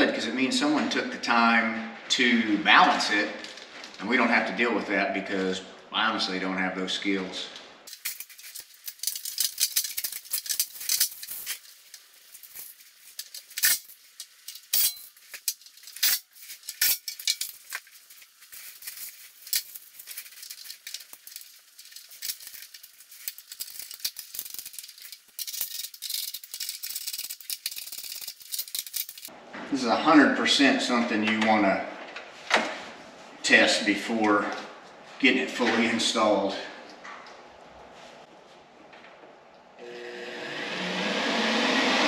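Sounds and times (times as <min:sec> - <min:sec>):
bubble wrap crinkling: 0:07.9 - 0:29.3
bubble wrap snapping: 0:15.2 - 0:25.4.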